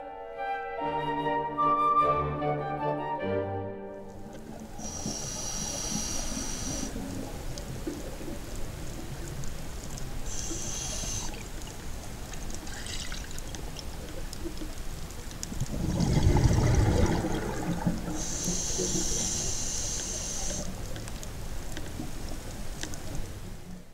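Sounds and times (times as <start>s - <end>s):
low rush of water: 4.0s - 23.9s
water trickling and bubbling: 4.1s - 23.7s
high hissing: 4.6s - 7.1s, 10.2s - 11.4s, 18.1s - 20.7s.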